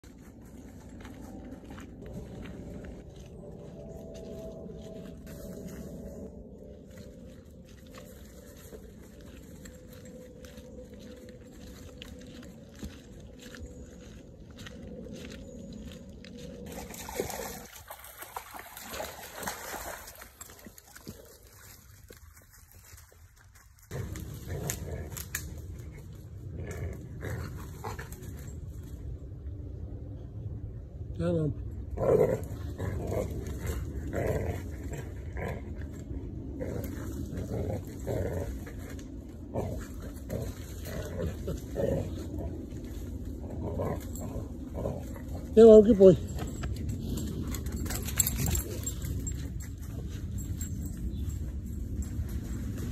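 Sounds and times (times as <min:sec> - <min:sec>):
water splashes: 0:16.7 - 0:23.0
stream water trickling: 0:16.7 - 0:23.5
dog growling and grunting: 0:31.9 - 0:35.9, 0:39.5 - 0:42.6, 0:43.4 - 0:45.6.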